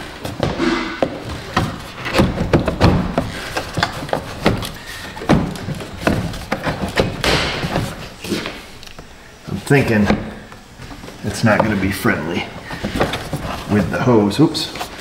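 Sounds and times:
plastic box knocking and rubbing: 0.3s - 8.4s, 12.6s - 14.1s.

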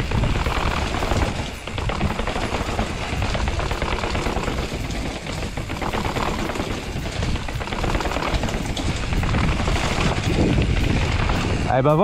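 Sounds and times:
bike tyres on wet pavement: 0.0s - 12.0s
rattling clicks from bike: 0.0s - 12.0s
wind rumble on microphone: 0.0s - 12.0s.

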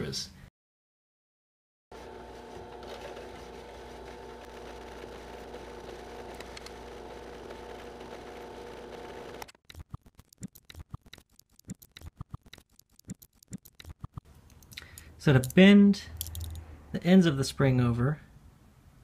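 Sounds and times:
drill press motor hum: 1.9s - 9.5s.

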